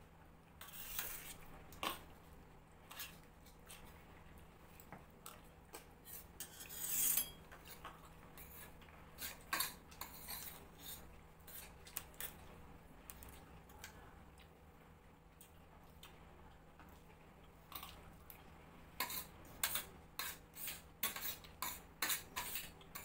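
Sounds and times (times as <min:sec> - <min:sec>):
loud spoon scrape: 0:00.6 - 0:01.4, 0:06.0 - 0:07.8, 0:08.4 - 0:11.7, 0:19.0 - 0:23.0
spoons clinking on steel plates: 0:06.4 - 0:07.4.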